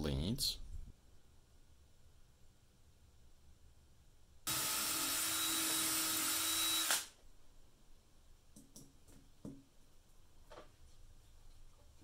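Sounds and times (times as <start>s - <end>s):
cordless drill running: 4.5s - 7.2s.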